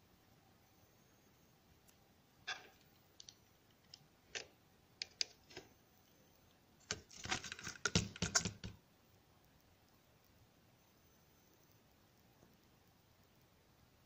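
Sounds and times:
laptop parts clicking and rattling: 6.8 - 8.8.

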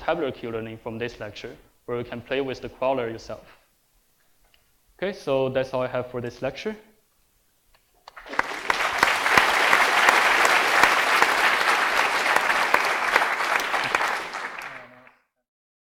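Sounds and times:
audience applauding: 8.1 - 15.2.

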